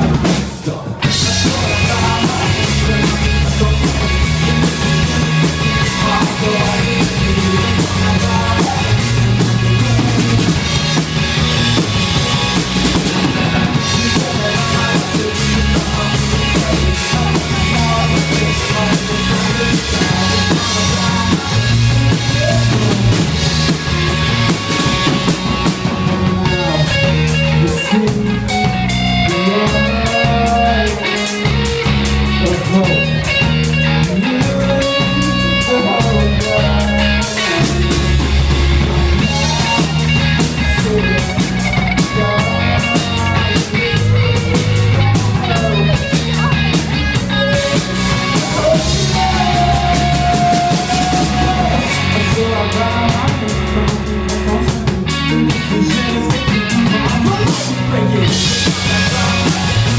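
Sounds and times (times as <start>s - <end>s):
drum kit: 0.0s - 59.9s.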